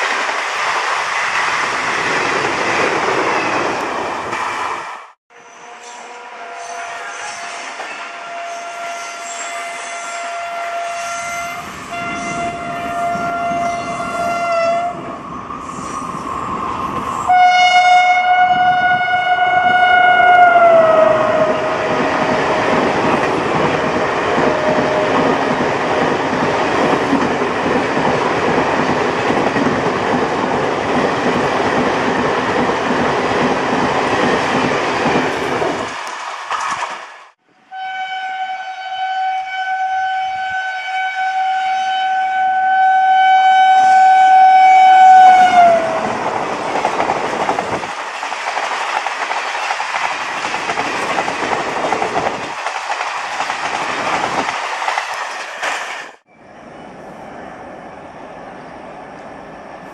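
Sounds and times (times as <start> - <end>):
locomotive horn blasts: 5.3 - 15.0, 17.3 - 21.7, 37.6 - 46.0
steady locomotive horn: 5.3 - 15.1, 17.3 - 22.6, 37.4 - 46.2.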